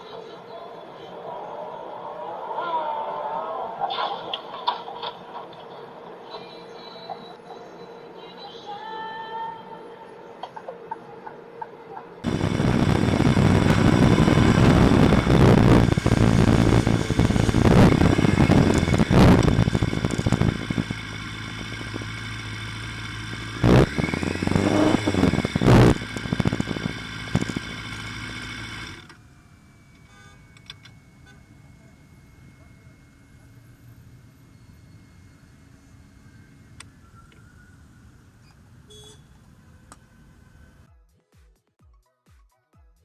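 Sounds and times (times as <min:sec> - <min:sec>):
motorcycle engine running: 0:12.2 - 0:29.1.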